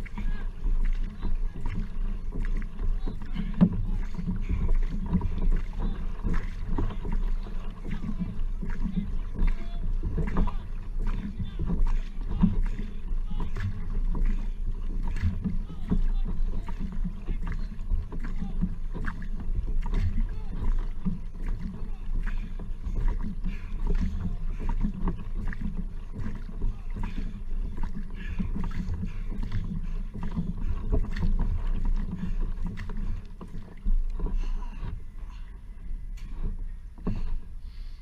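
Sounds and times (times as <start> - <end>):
paddle splashes: 0.0 - 38.0
steady low rumble: 0.0 - 38.0.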